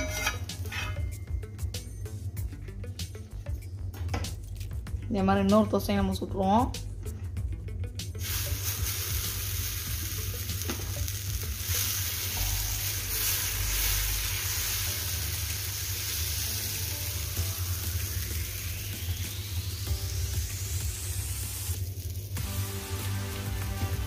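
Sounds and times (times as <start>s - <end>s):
batter sizzling on hot pan: 8.2s - 24.0s.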